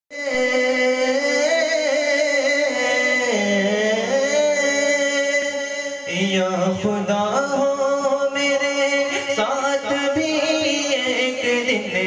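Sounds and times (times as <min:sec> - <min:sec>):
man singing through microphone: 0:00.1 - 0:12.0.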